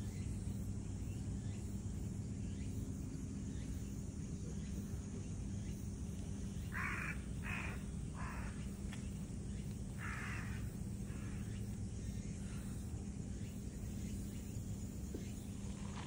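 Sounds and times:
low background hum: 0.0s - 16.0s.

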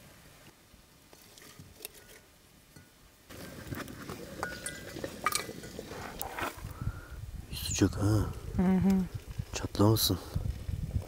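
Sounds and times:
glassware and dishes clinking: 4.4s - 5.8s.

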